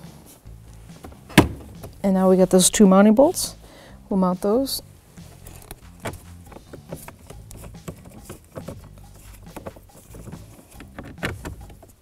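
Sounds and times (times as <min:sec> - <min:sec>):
sharp knocks: 0:01.3 - 0:02.0.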